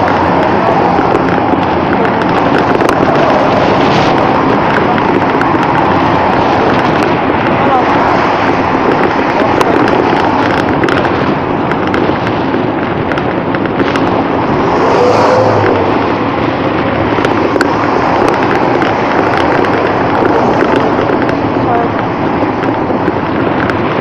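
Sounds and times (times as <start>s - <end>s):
bus passing: 0.0s - 24.0s
road traffic: 0.0s - 24.0s
wind rushing over microphone: 0.0s - 24.0s.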